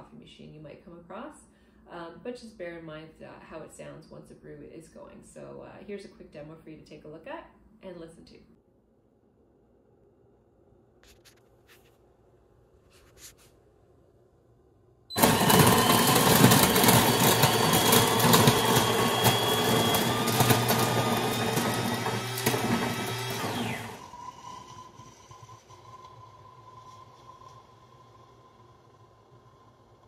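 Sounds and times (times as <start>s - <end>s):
coffee grinder grinding beans: 15.1s - 27.6s.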